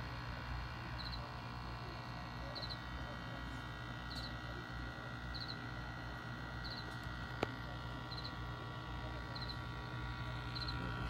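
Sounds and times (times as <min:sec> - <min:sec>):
aquarium aerator hum: 0:00.0 - 0:11.0.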